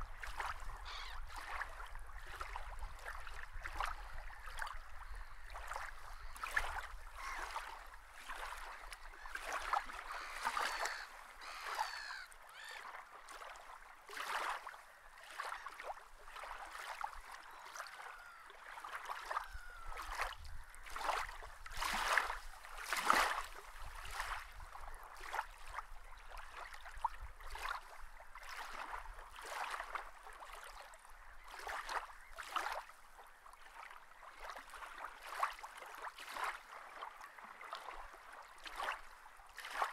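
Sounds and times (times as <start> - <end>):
water splashing and lapping: 0.0 - 39.9
short bird calls: 10.0 - 12.9.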